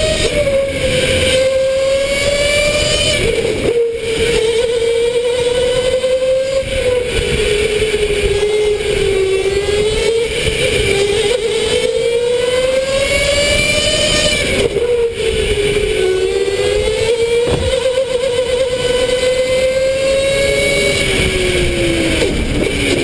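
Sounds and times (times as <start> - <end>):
electric go-kart motor whining: 0.0 - 23.0
kart rolling rumble: 0.0 - 23.0.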